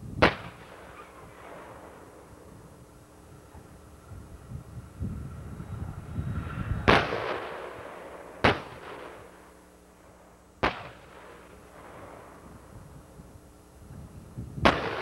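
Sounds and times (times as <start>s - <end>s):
tank gunfire with echo: 6.9s - 9.3s, 10.6s - 12.3s, 14.6s - 15.0s.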